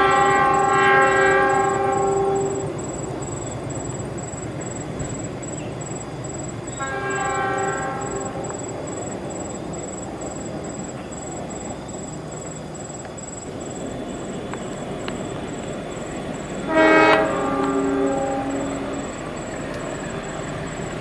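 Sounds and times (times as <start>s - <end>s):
locomotive horn blast: 0.0s - 3.6s, 6.7s - 9.1s, 16.4s - 20.4s.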